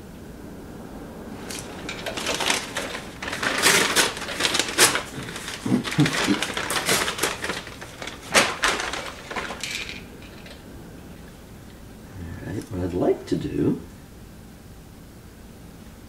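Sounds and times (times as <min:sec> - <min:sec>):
tools clicking and clattering: 0:01.4 - 0:10.6.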